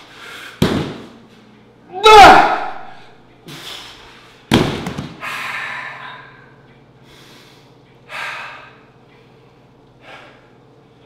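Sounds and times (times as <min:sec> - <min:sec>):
man breathing hard: 0:00.0 - 0:00.6, 0:05.2 - 0:09.2, 0:10.0 - 0:10.6.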